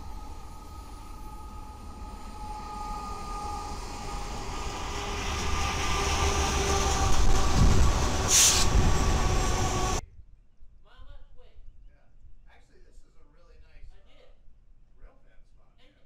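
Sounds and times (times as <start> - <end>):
faint steady tones: 0.0 - 5.6
train rumbling on rails: 0.0 - 10.0.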